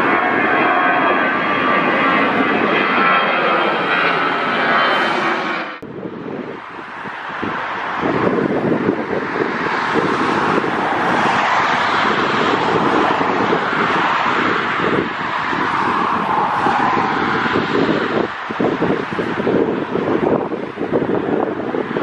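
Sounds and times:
jet engines at takeoff thrust: 0:00.0 - 0:22.0
wind buffeting microphone: 0:00.0 - 0:22.0.

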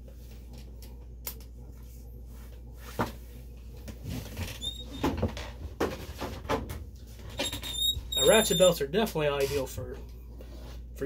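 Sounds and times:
brief high squeak: 0:07.4 - 0:08.8.

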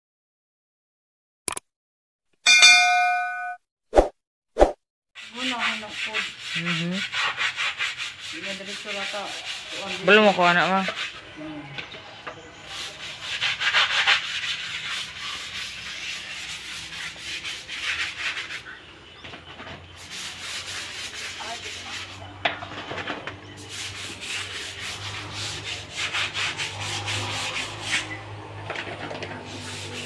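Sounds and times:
scrubbing concrete wall: 0:05.2 - 0:11.4, 0:12.5 - 0:19.0, 0:19.9 - 0:22.4, 0:23.6 - 0:30.0.

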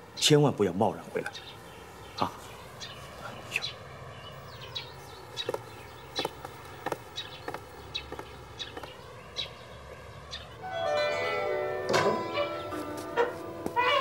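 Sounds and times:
faint outdoor background: 0:00.0 - 0:14.0
footsteps on hard ground: 0:05.3 - 0:09.4, 0:12.2 - 0:14.0.

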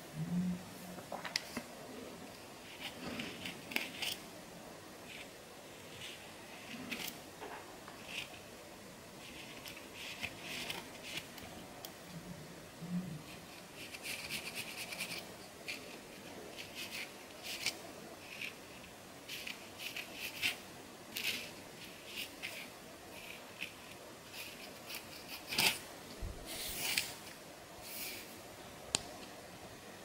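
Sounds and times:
comb scratching scalp: 0:13.3 - 0:25.8.

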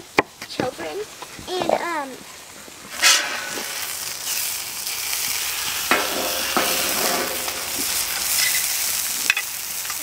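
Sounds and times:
food sizzling on griddle: 0:00.0 - 0:10.0
metal spatula scraping griddle: 0:02.9 - 0:04.4, 0:05.9 - 0:08.7.

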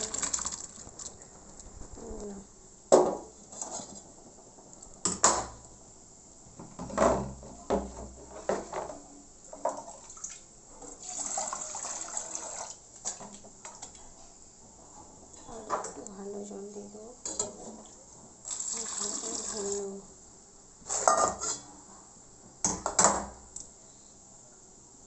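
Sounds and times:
running water: 0:00.0 - 0:01.7, 0:09.5 - 0:14.0, 0:18.4 - 0:20.0
metal cookware clanking in sink: 0:20.9 - 0:21.7.

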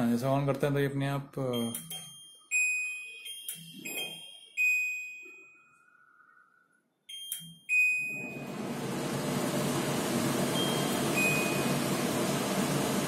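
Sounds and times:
blower fan rushing: 0:08.2 - 0:13.0.

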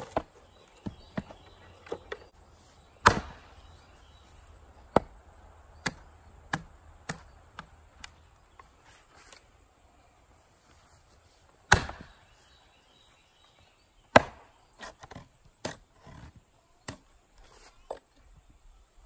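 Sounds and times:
axe chopping into log: 0:03.0 - 0:03.5, 0:04.9 - 0:05.2, 0:05.8 - 0:08.1, 0:11.7 - 0:12.2, 0:14.1 - 0:14.5.

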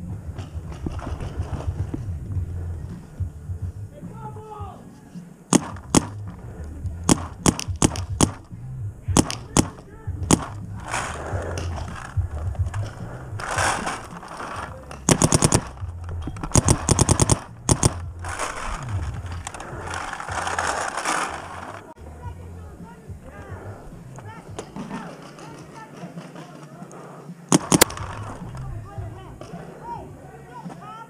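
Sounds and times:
paintball markers firing: 0:05.5 - 0:06.3, 0:07.0 - 0:08.5, 0:09.2 - 0:21.9, 0:27.5 - 0:28.7.

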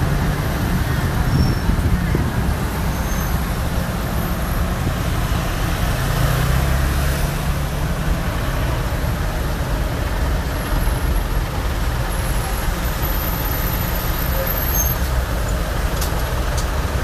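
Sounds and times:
street traffic: 0:00.0 - 0:17.0
truck engine and road noise: 0:00.0 - 0:17.0.

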